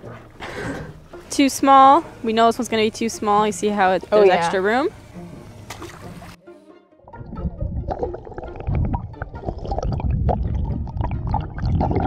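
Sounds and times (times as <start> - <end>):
muffled underwater rumble: 7.1 - 12.0.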